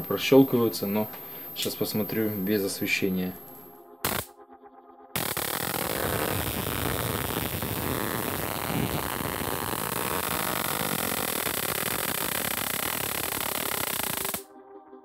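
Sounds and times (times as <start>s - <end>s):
electrical spark hissing buzz: 4.0s - 4.3s, 5.2s - 14.4s.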